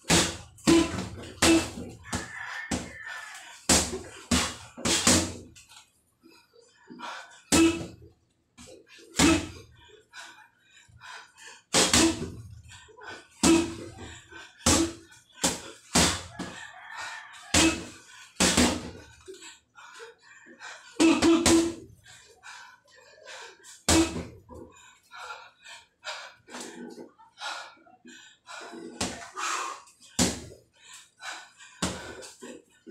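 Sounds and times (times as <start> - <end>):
gloves punching heavy bag: 0.0 - 2.9, 3.7 - 5.6, 7.5 - 8.0, 9.1 - 9.7, 11.7 - 12.6, 13.4 - 16.6, 17.5 - 19.0, 21.0 - 21.9, 23.9 - 24.5, 30.2 - 30.5, 31.8 - 32.2.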